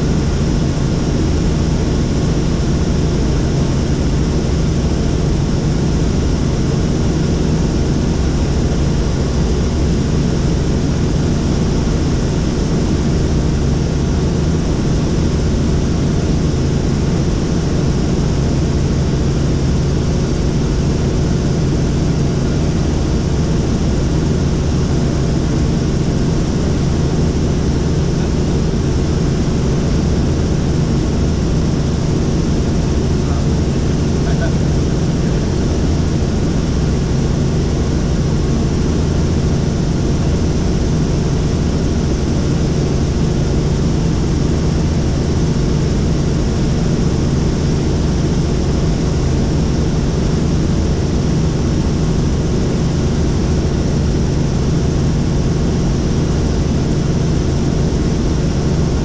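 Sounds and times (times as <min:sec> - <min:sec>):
helicopter engine and rotor drone: 0:00.0 - 0:59.0.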